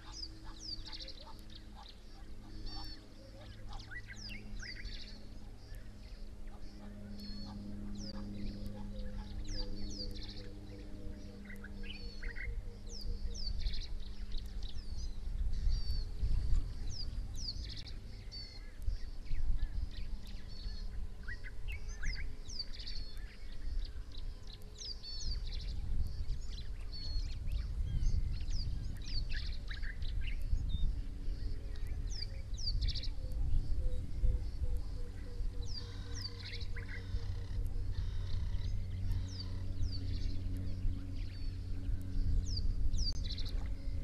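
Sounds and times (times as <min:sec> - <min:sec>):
small birds chirping: 0:00.0 - 0:44.0
steady low rumble: 0:00.0 - 0:44.0.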